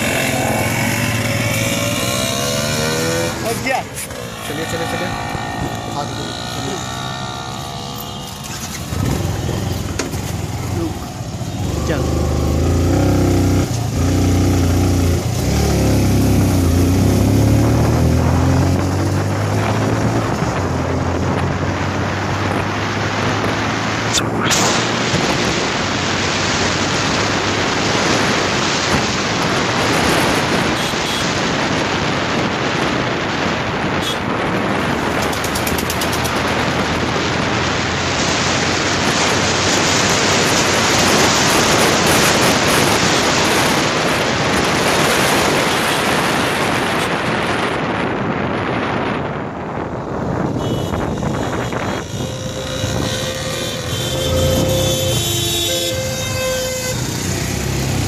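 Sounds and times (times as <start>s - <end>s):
motorbike engine: 0.0s - 26.1s, 34.0s - 37.1s, 50.2s - 58.0s
road noise: 0.0s - 58.0s
wind rushing over microphone: 0.0s - 58.0s.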